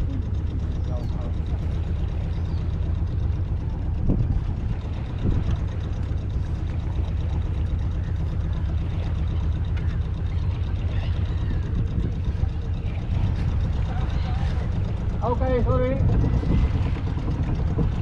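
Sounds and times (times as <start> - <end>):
boat engine low rumble: 0.0 - 18.0
gull calls: 9.3 - 12.0.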